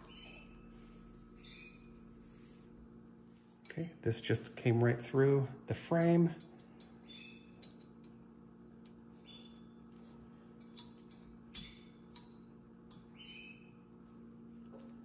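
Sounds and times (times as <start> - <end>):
bird chirping: 0.0 - 2.0, 7.0 - 7.6, 9.2 - 9.8, 13.0 - 13.8
steady low hum: 0.0 - 15.0.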